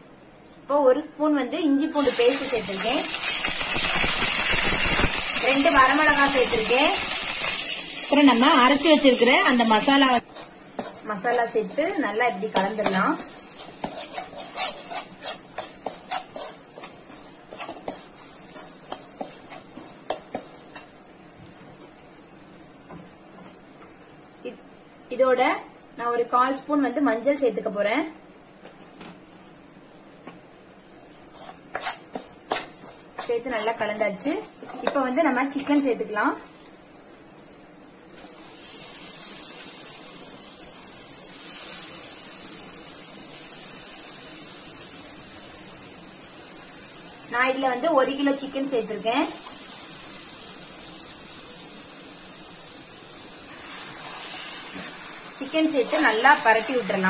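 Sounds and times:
faint sizzle of frying: 0.0s - 57.0s
spoon scraping non-stick pan: 9.4s - 21.0s, 31.3s - 35.9s.

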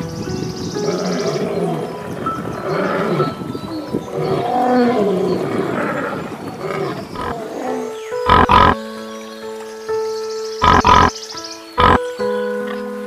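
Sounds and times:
background music: 0.0s - 13.0s
lion cubs growling and snarling: 2.6s - 8.8s.

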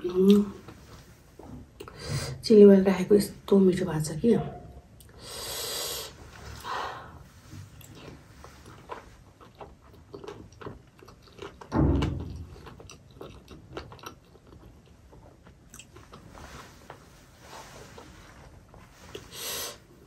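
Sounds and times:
wet chewing and mouth smacks: 7.8s - 16.4s.

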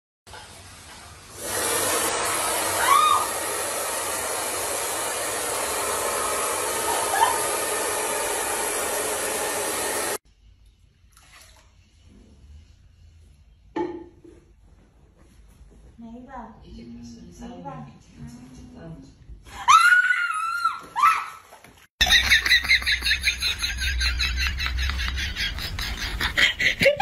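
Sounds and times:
hair dryer blowing: 1.3s - 10.2s.

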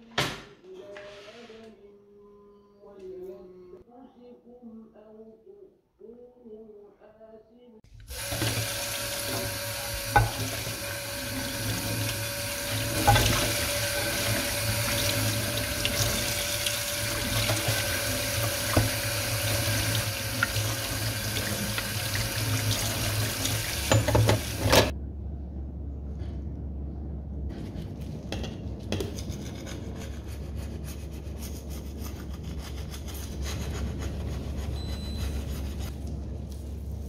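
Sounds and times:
tap water running into sink: 8.0s - 24.9s.

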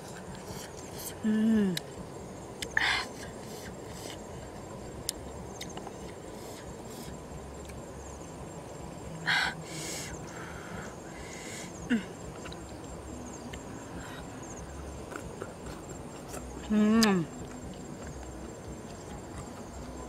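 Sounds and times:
faint insects: 0.0s - 20.0s
wet chewing mouth sounds: 15.0s - 20.0s.

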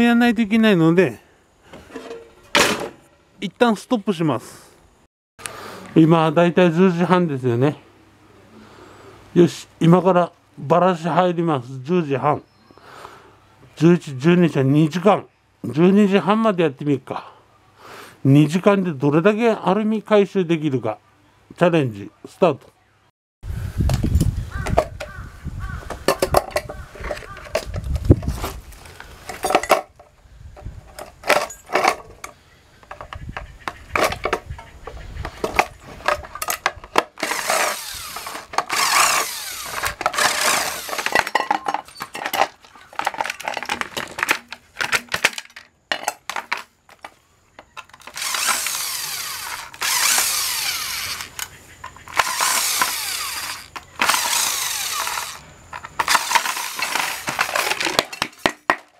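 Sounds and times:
impact driver running: 37.0s - 41.4s, 48.0s - 51.4s, 52.1s - 57.8s.

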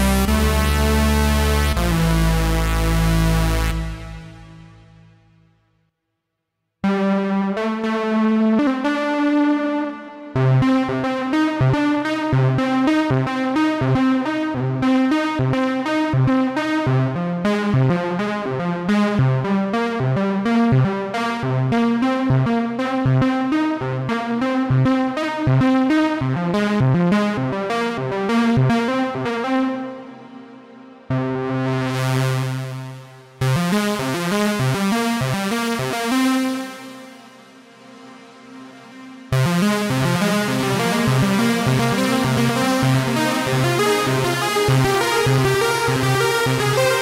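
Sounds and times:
pulsing bass line: 0.0s - 5.5s, 39.3s - 47.0s
synthesizer held notes: 36.7s - 47.0s
fast bright synth pattern: 39.3s - 47.0s.

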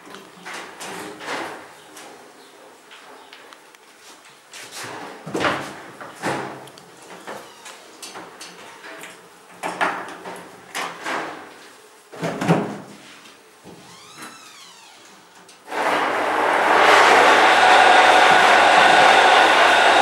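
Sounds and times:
honey extractor motor whirring: 15.7s - 20.0s.

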